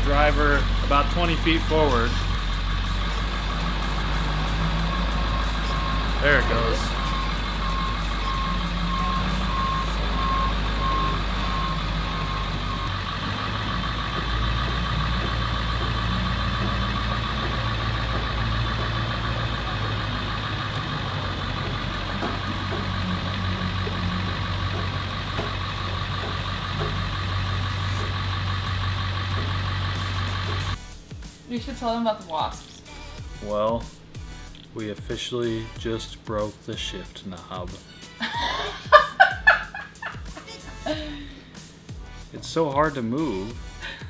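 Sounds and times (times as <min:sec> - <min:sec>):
bus engine running: 0:00.0 - 0:44.0
rapid beeping: 0:00.2 - 0:30.8.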